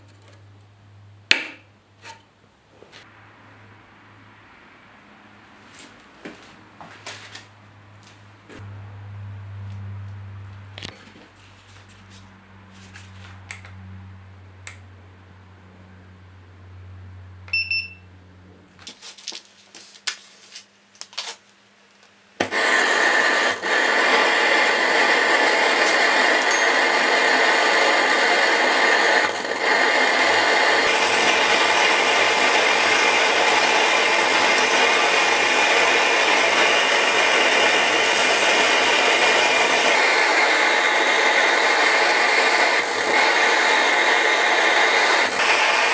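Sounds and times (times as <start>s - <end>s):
short electronic beep: 17.5s - 18.1s
gas torch hissing: 22.4s - 45.9s.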